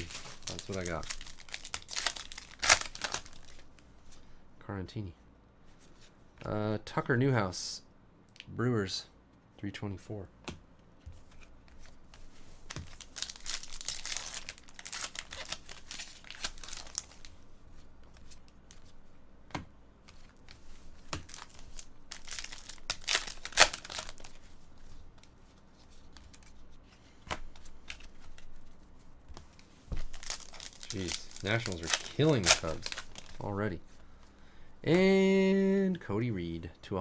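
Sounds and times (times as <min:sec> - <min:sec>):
foil wrappers tearing and crinkling: 0:00.0 - 0:03.6, 0:12.9 - 0:17.3, 0:21.3 - 0:24.4, 0:30.0 - 0:33.5.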